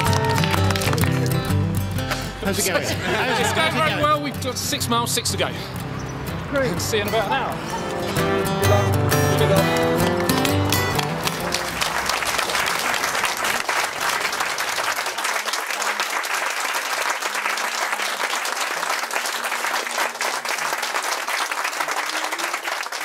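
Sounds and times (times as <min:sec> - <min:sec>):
audience applauding: 0:00.0 - 0:01.8, 0:09.4 - 0:23.0.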